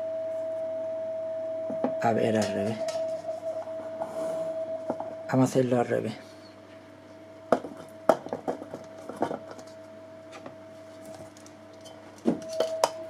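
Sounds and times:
steady electronic tone: 0:00.0 - 0:05.8.

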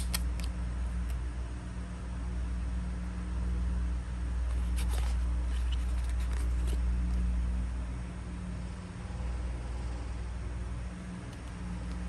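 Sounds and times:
cardboard card rustling and clicking: 0:00.0 - 0:00.5, 0:04.5 - 0:06.9
low steady rumble: 0:00.0 - 0:12.0.

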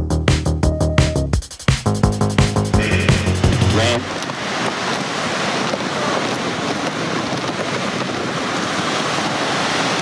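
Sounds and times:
ocean waves breaking: 0:02.4 - 0:10.0.

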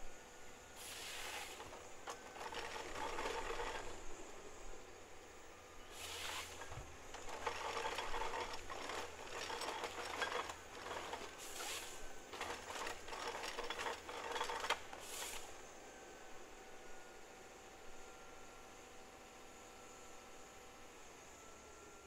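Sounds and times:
harvester mechanical buzzing and rattling: 0:00.8 - 0:04.8, 0:05.8 - 0:15.6.

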